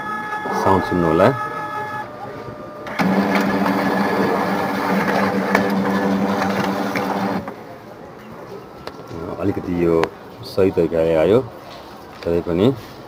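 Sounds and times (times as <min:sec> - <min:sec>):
printer motor and gears humming: 0:00.0 - 0:07.6.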